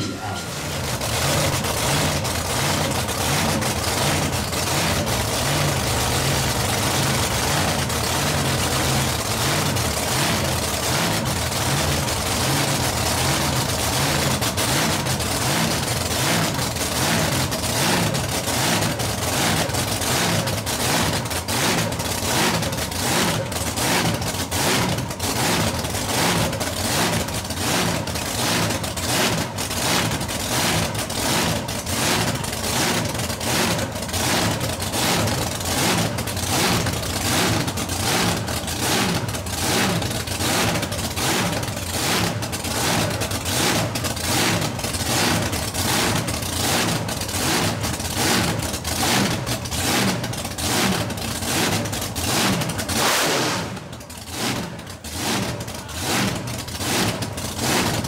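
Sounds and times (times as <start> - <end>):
boat engine idling: 0.0 - 53.0, 53.8 - 58.0.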